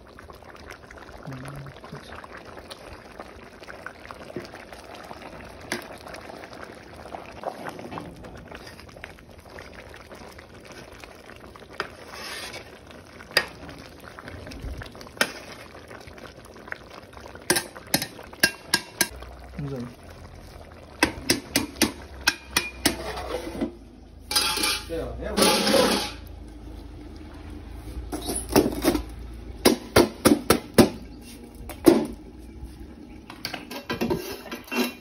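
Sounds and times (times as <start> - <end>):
pot boiling and bubbling: 0.0 - 35.0
metal spoon clinking on pot: 22.2 - 23.1, 24.3 - 26.1.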